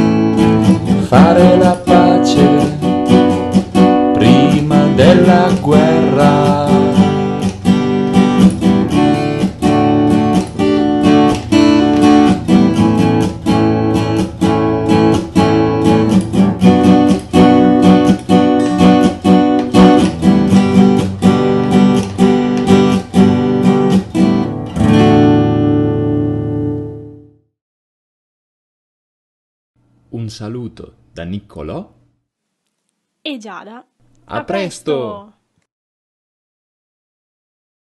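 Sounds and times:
acoustic guitar strumming: 0.0 - 27.4.

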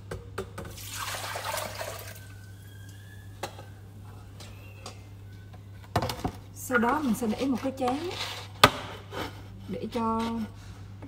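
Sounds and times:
liquid pouring and splashing: 0.7 - 2.3.

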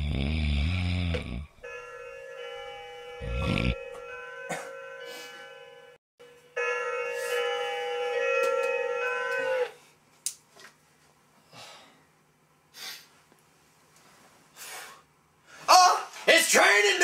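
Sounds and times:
loud held tone: 2.7 - 4.6.

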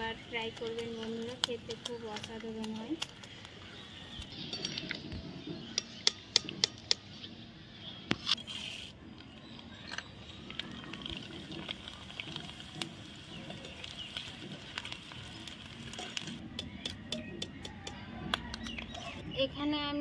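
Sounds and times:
food sizzling in hot oil: 0.0 - 3.3, 10.3 - 16.4.

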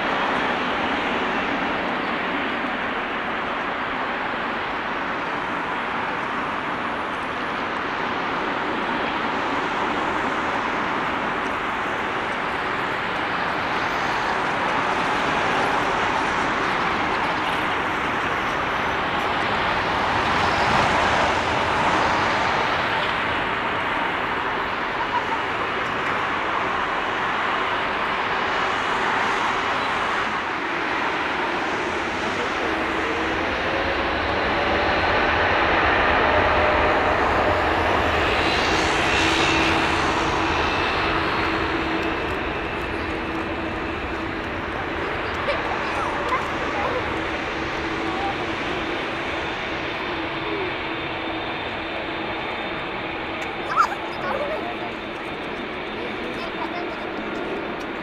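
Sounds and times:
jet engines at takeoff: 0.0 - 58.0.

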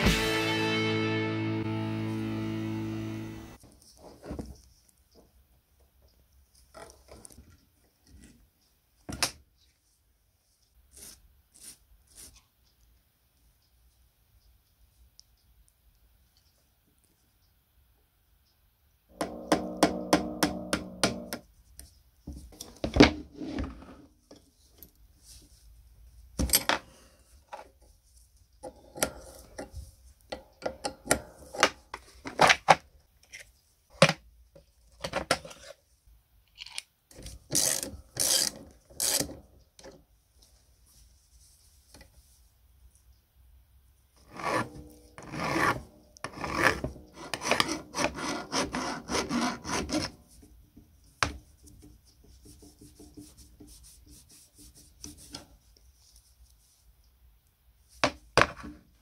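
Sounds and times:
rapid rasping scrapes: 44.2 - 50.2.

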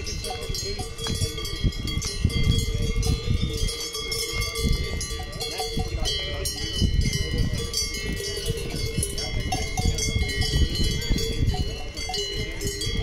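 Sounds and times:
cowbells clanking: 0.0 - 13.0.

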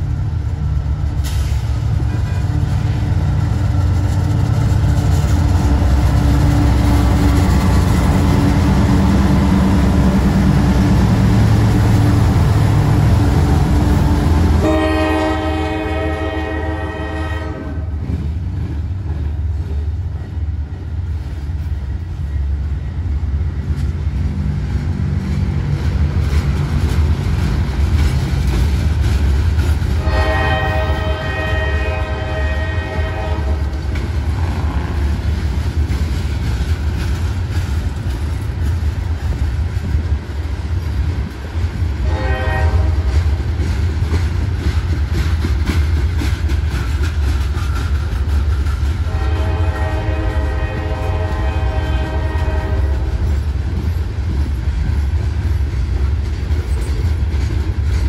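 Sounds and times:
freight train wheels rumbling: 0.0 - 58.0
locomotive air horn: 14.6 - 18.0, 30.0 - 33.7, 42.0 - 43.2, 49.0 - 53.2.

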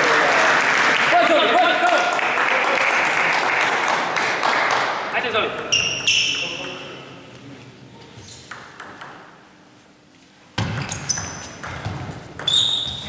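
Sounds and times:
table tennis ball hits: 8.5 - 9.3, 10.6 - 13.0.

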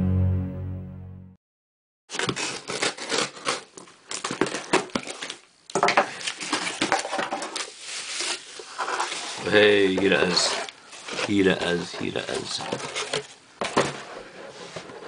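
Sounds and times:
scissors cutting packing tape: 2.1 - 5.4
bubble wrap rustling and crackling: 2.1 - 14.4
cardboard flaps folding: 6.2 - 15.0.

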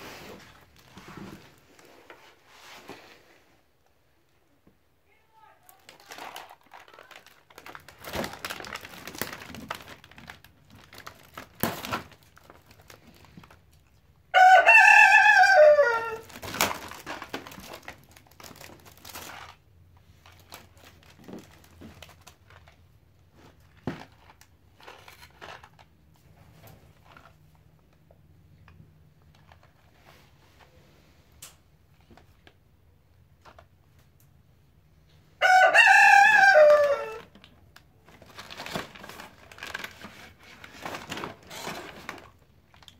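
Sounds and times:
crinkling paper and wrappers: 5.1 - 28.1, 29.2 - 30.7, 35.8 - 42.9
loud crowing call: 14.3 - 16.4, 35.4 - 37.3.

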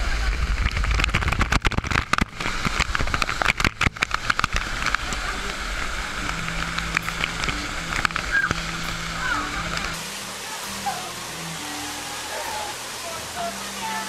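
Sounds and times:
water drumming on microphone: 0.0 - 14.0
waterfall rushing: 0.0 - 14.0.

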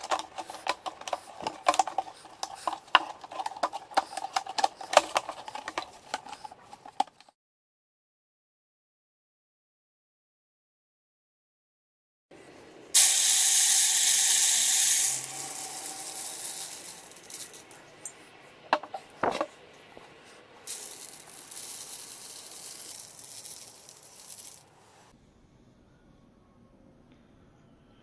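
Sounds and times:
grain poured into plastic bottle: 13.0 - 17.8, 20.7 - 24.6.

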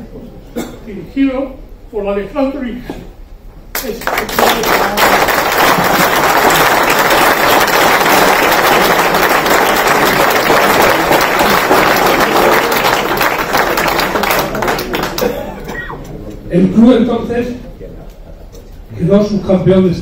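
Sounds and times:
audience applauding: 3.8 - 15.6.

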